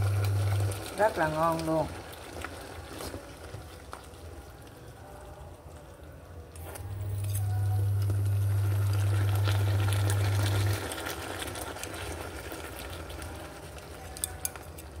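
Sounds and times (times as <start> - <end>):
liquid bubbling in a frying pan: 0.0 - 6.6, 7.5 - 15.0
steady low hum: 6.8 - 10.8.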